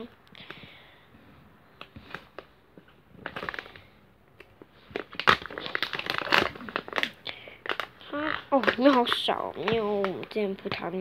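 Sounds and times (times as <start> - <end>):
plastic pouch crinkling: 3.2 - 10.8.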